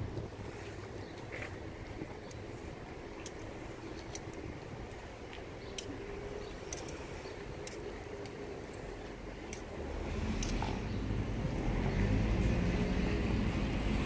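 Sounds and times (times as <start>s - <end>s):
traffic rumble: 0.0s - 14.0s
wind: 0.0s - 14.0s
faint clicks: 3.2s - 9.8s.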